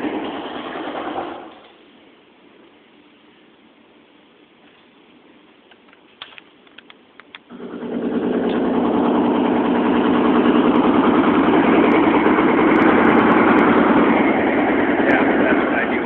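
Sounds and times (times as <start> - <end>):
jackhammer hammering: 7.5 - 16.0.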